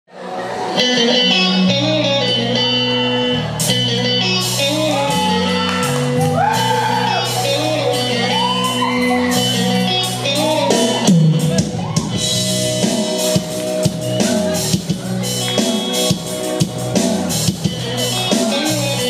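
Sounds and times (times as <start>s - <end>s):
keyboard chords: 0.1s - 19.0s
electric guitar melody: 0.2s - 19.0s
bass line: 0.4s - 19.0s
drum strikes: 11.1s - 18.7s.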